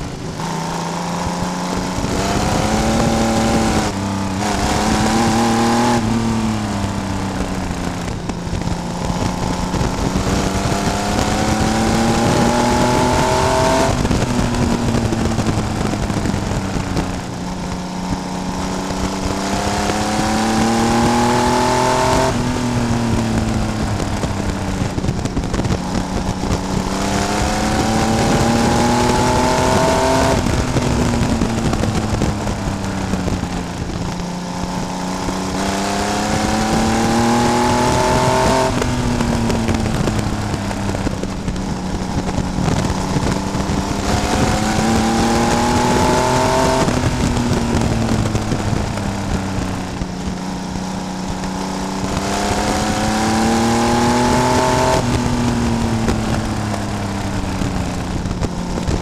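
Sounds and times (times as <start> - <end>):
race car engine revving: 0.0 - 59.0
wind and road noise: 0.0 - 59.0.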